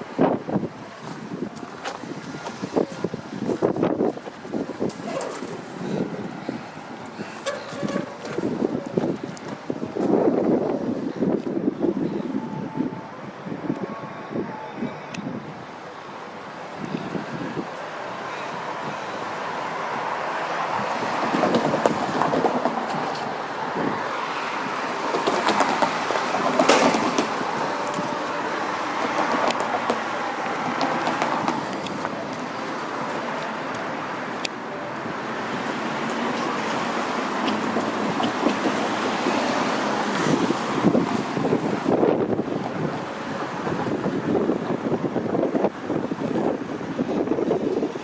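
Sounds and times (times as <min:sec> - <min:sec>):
vehicles rumbling over crossing: 0:00.0 - 0:48.0.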